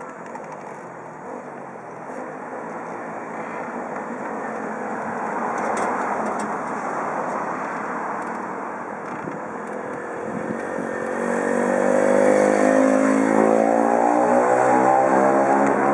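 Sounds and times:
steady engine drone: 0.0s - 15.9s.

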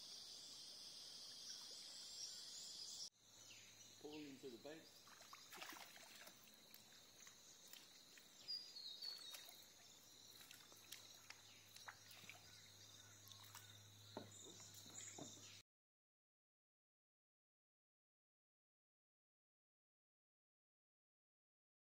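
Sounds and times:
faint chirps and ticks: 1.2s - 15.6s.

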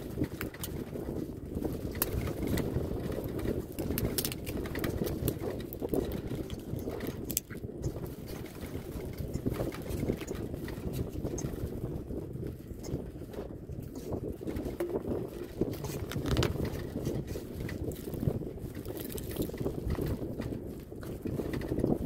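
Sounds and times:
wind buffeting microphone: 0.0s - 22.0s
phone handling clicks and rubs: 14.8s - 17.2s.

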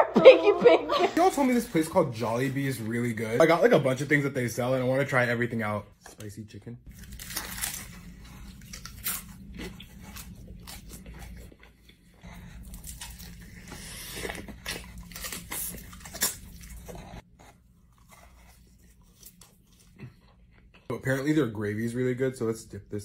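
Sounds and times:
crunching fried chicken: 6.9s - 11.6s, 12.6s - 17.0s
wet chewing: 6.9s - 20.9s.

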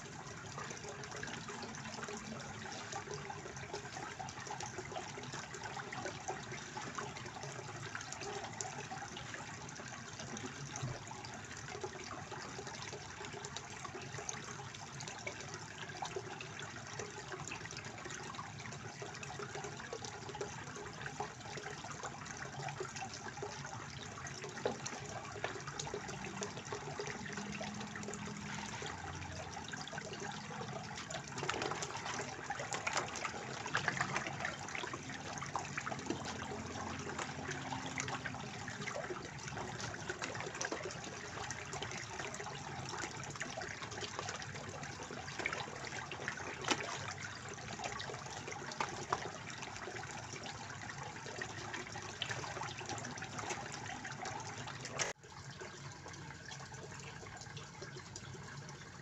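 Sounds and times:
fountain water splashing: 15.0s - 55.2s.

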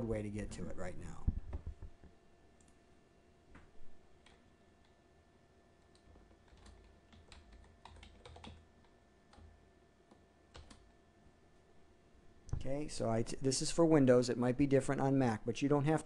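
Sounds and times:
keyboard typing: 5.8s - 10.9s.

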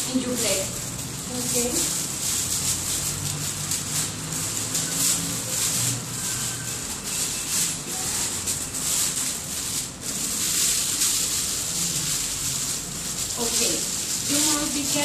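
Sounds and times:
plastic bag rustling and crinkling: 0.0s - 15.0s.

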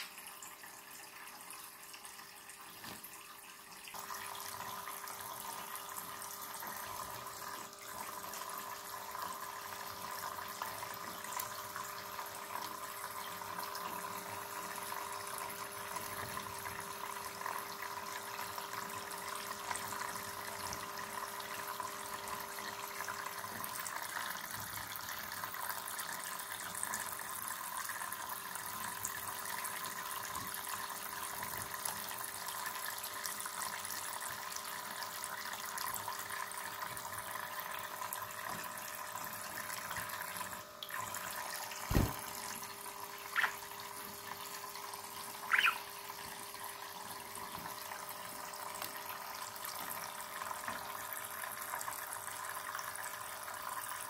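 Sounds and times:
water pouring into plastic basin: 35.1s - 54.0s.

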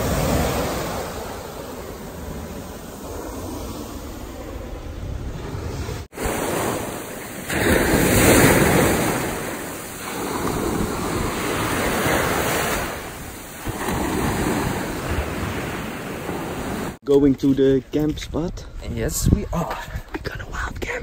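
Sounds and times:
surf breaking on a beach: 0.0s - 17.0s
wind on the microphone: 7.6s - 21.0s.

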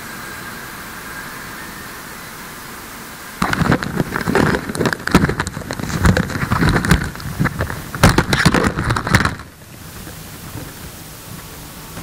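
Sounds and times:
steady hiss: 0.0s - 12.0s
crackles and knocks: 3.4s - 12.0s.

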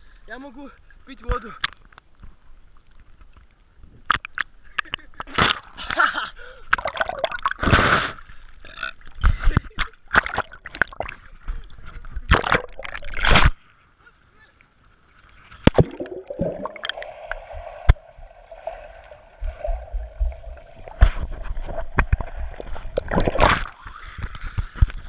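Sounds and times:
camera splashing into water: 21.0s - 23.8s.

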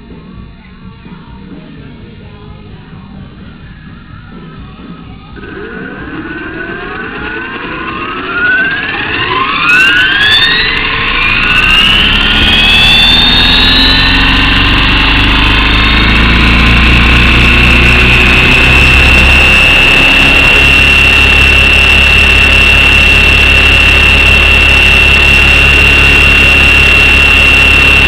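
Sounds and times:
low rumble of rotor wash: 1.8s - 28.0s
electric motor and gear whine: 2.6s - 28.0s.

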